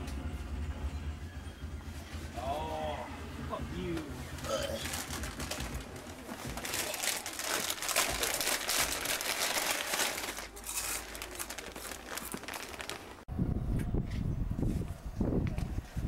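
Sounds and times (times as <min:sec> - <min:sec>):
plastic food packet crinkling: 0:04.8 - 0:13.2.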